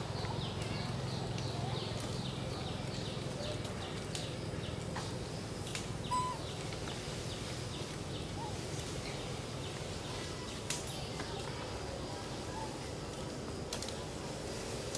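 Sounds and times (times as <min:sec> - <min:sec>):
birds chirping: 0:00.0 - 0:12.9
clear bird call: 0:06.0 - 0:06.6.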